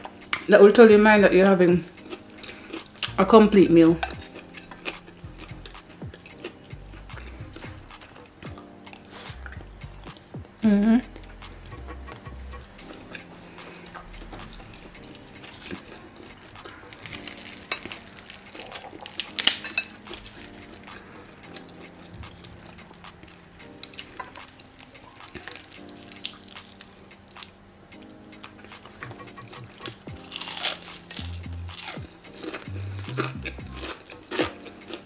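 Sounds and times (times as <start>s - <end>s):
background music: 0.0s - 35.0s
crunchy bites: 15.4s - 21.0s, 28.8s - 35.0s.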